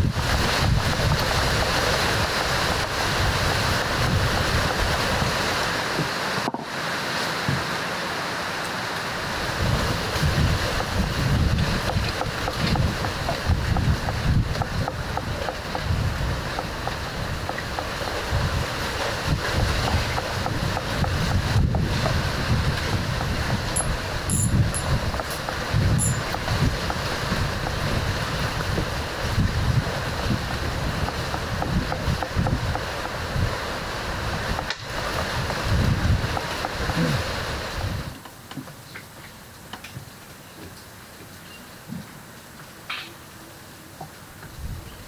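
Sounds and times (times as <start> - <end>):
wind buffeting microphone: 0.0 - 6.1, 9.4 - 38.1, 44.5 - 45.0
outdoor hiss: 0.0 - 45.0.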